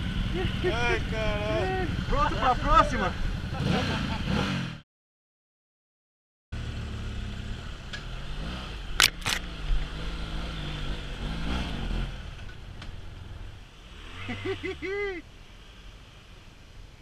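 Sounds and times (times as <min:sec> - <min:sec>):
motorcycle engine revving: 0:00.0 - 0:04.8, 0:06.6 - 0:14.9.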